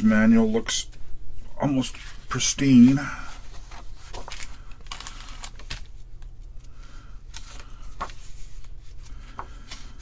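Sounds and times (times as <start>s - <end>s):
low steady hum: 0.0s - 10.0s
paper and plastic rustling: 1.8s - 10.0s.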